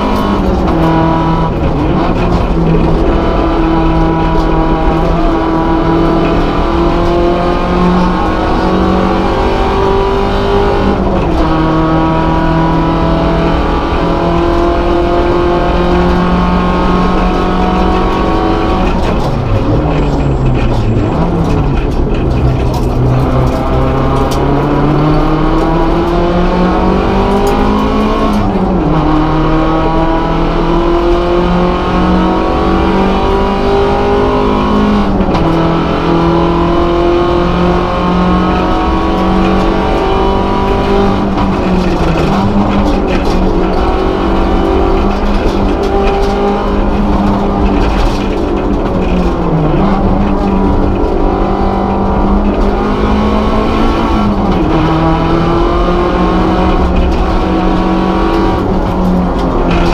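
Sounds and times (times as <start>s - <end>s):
car engine accelerating: 0.0s - 59.9s.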